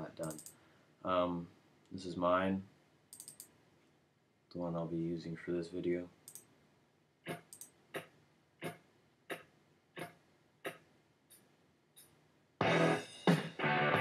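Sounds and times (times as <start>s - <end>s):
loud intro music: 12.6s - 14.0s.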